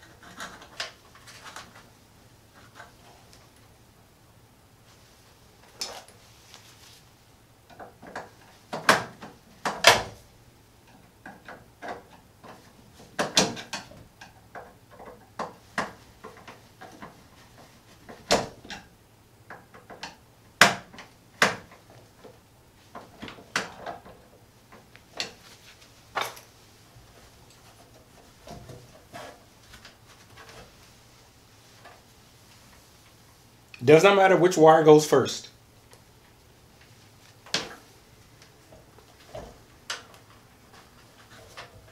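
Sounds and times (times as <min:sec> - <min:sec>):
hands clicking in metal breaker panel: 0:07.7 - 0:10.2, 0:10.8 - 0:17.2, 0:19.5 - 0:21.9.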